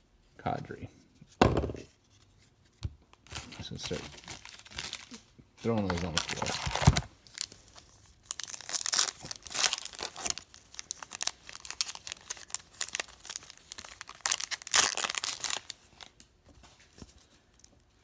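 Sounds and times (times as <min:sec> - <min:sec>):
foil wrapper tearing and crinkling: 0:03.3 - 0:16.2.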